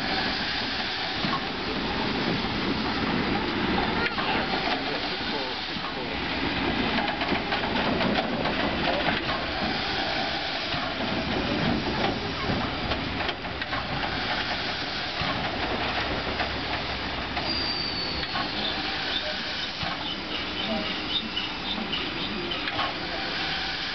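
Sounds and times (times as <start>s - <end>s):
steam hissing: 0.0s - 23.9s
locomotive wheels clanking: 0.1s - 23.9s
faint high squeal: 17.4s - 19.3s.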